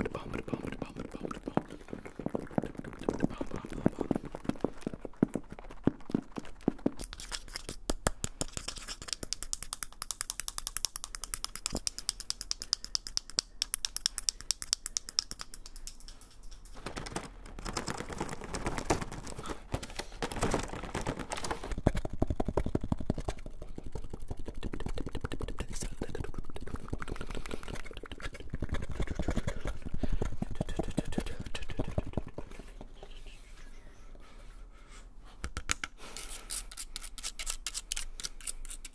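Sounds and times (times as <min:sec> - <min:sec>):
cardboard box rustling: 0:16.8 - 0:21.8.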